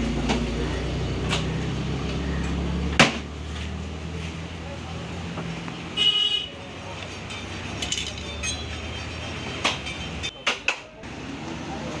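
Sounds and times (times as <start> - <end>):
vehicle engine running: 0.0 - 5.9
vehicle horn toot: 6.0 - 6.5.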